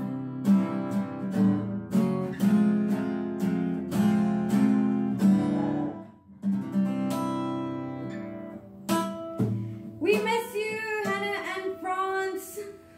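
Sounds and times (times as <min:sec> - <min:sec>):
acoustic guitar strummed and picked: 0:00.0 - 0:12.9
woman singing: 0:10.0 - 0:12.9.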